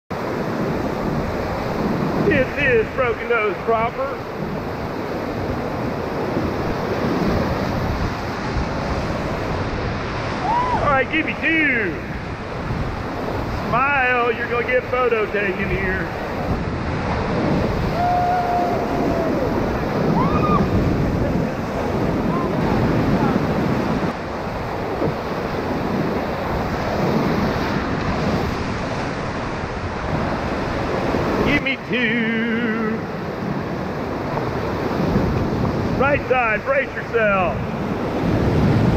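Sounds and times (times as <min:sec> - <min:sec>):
whitewater rushing: 0:00.1 - 0:38.9.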